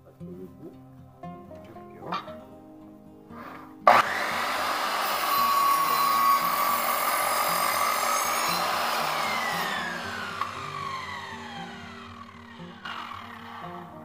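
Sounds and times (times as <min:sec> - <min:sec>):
miter saw motor whining: 0:03.9 - 0:14.0.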